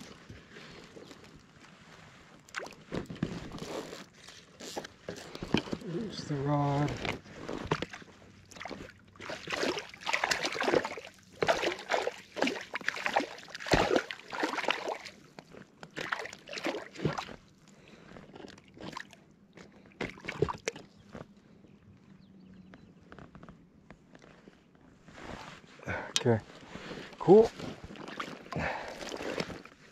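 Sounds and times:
fish splashing in net: 0:07.8 - 0:15.3, 0:15.9 - 0:17.4.

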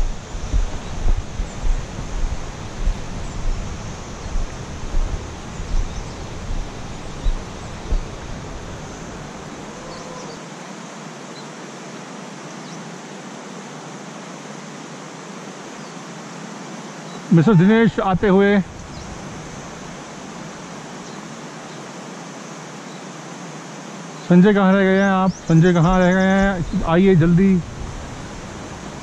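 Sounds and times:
wind buffeting microphone: 0:00.0 - 0:10.3, 0:18.0 - 0:20.0, 0:24.9 - 0:29.0
steady rushing hiss: 0:00.0 - 0:29.0.

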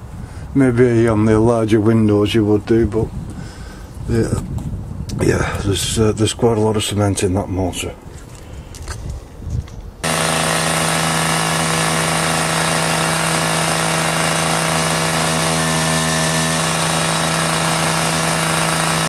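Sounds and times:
disc cutter cutting brick: 0:10.0 - 0:19.0.

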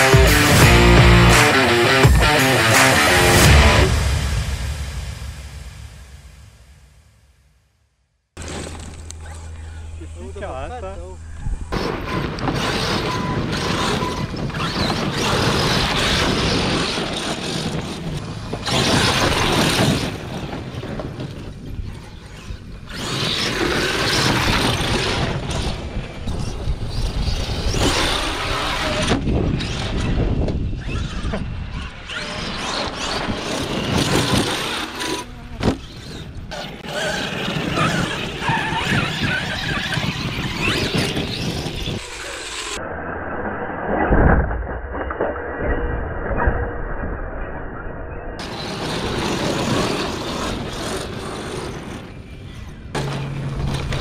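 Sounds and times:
rc truck motor surging: 0:11.6 - 0:44.0, 0:48.4 - 0:54.0.

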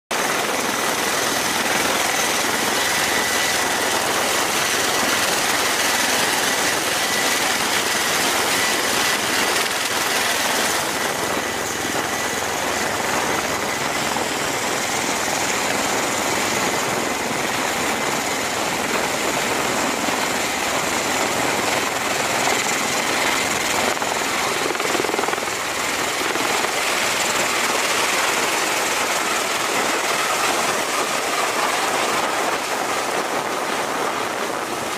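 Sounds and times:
rotor and turbine noise: 0:00.1 - 0:34.9.

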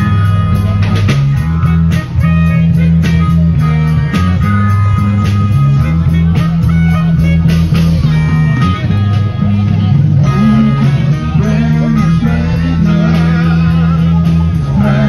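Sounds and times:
bass line: 0:00.0 - 0:15.0
drums beating: 0:00.0 - 0:15.0
live band through speakers: 0:00.0 - 0:15.0.

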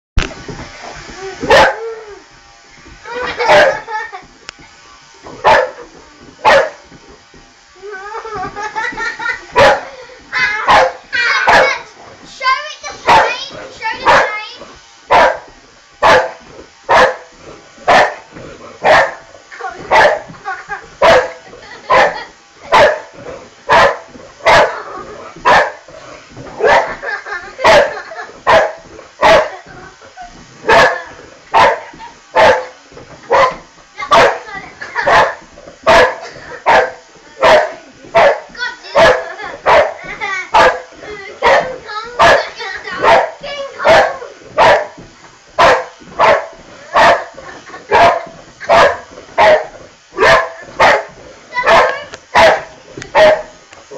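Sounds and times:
dog barking: 0:01.5 - 0:01.8, 0:03.5 - 0:03.8, 0:05.4 - 0:05.8, 0:06.4 - 0:06.8, 0:09.6 - 0:09.9, 0:10.7 - 0:11.8, 0:13.1 - 0:13.4, 0:14.0 - 0:14.4, 0:15.1 - 0:17.3, 0:17.9 - 0:19.3, 0:19.9 - 0:20.3, 0:21.0 - 0:23.1, 0:23.7 - 0:24.8, 0:25.4 - 0:25.8, 0:26.6 - 0:27.0, 0:27.6 - 0:29.6, 0:30.7 - 0:40.0, 0:40.6 - 0:45.0, 0:45.6 - 0:53.5.

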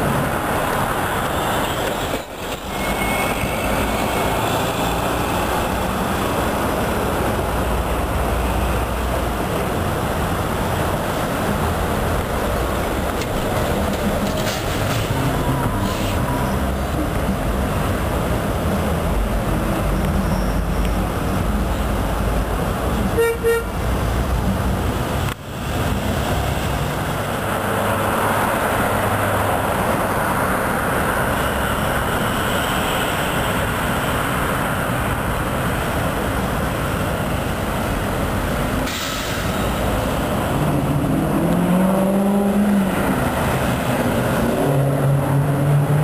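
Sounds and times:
diesel locomotive rumbling: 0:00.0 - 0:46.0
locomotive horn toot: 0:23.1 - 0:23.7.

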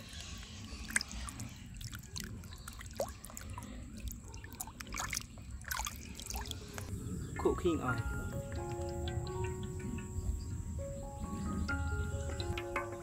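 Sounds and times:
water sloshing in a basin: 0:00.0 - 0:06.9.

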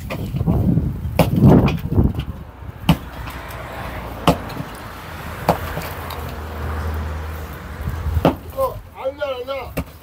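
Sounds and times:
sledgehammer striking concrete: 0:01.2 - 0:01.8.

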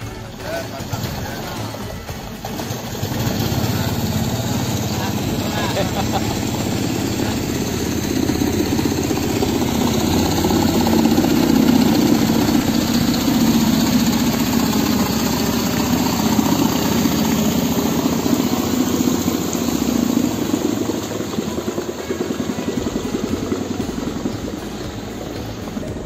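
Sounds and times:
motorboat engine running: 0:00.0 - 0:26.0.

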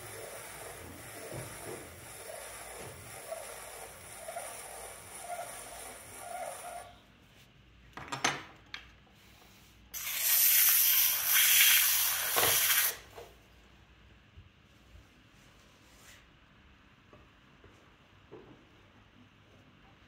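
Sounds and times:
trimming tool scraping clay: 0:00.0 - 0:07.0
rib rubbing on spinning clay: 0:00.0 - 0:07.1.

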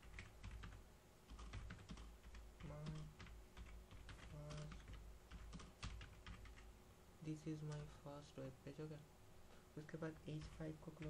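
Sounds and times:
computer keyboard typing: 0:00.0 - 0:06.7, 0:07.6 - 0:08.0, 0:10.1 - 0:11.0.

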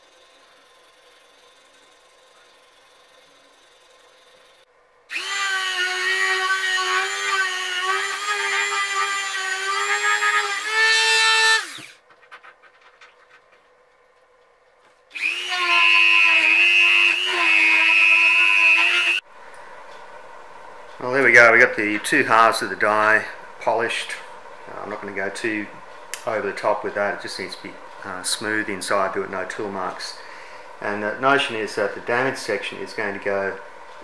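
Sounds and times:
electric drill whining: 0:05.1 - 0:12.0, 0:15.1 - 0:19.2.

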